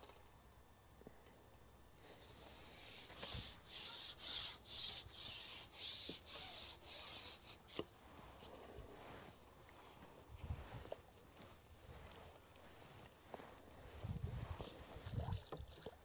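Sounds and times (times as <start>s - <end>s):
fishing pole scraping rubs: 2.0s - 9.4s.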